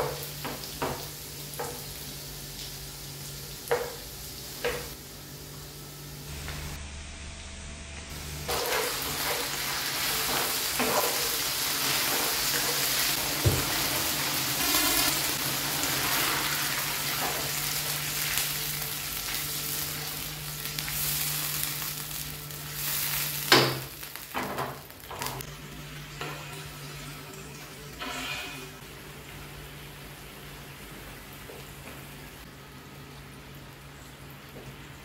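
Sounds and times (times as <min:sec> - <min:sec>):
sizzling in hot oil: 0:00.0 - 0:05.0, 0:08.1 - 0:30.3
knocks on pan: 0:13.4 - 0:13.8.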